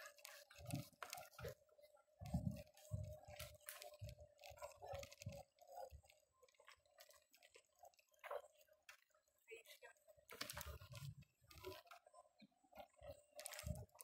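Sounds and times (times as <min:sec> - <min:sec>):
scattered clicks: 0:02.2 - 0:09.0.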